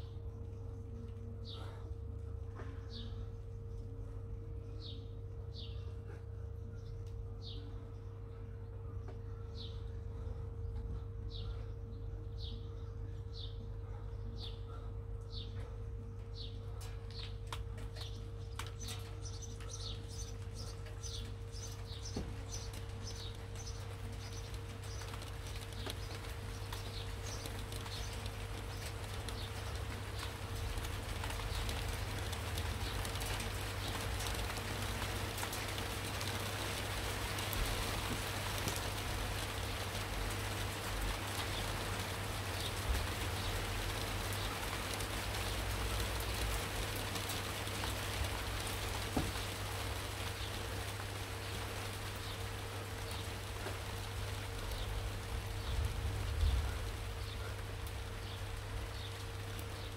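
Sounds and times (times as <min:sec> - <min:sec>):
faint steady hum: 0:00.0 - 0:59.9
songbird chirping: 0:00.0 - 0:59.9
steady rain: 0:16.4 - 0:59.9.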